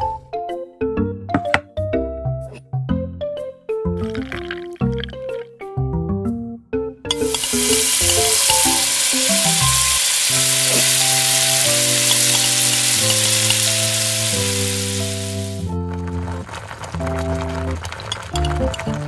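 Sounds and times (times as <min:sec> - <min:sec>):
background music: 0:00.0 - 0:19.0
onions sizzling in hot oil: 0:07.1 - 0:15.7.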